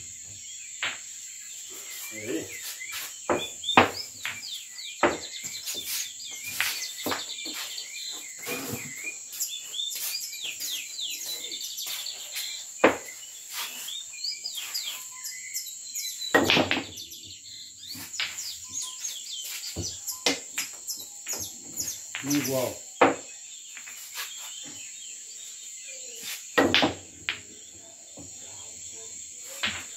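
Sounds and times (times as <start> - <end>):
chirping calls: 0.0 - 29.9
high insect drone: 0.0 - 29.9
pool balls clacking: 29.6 - 29.9.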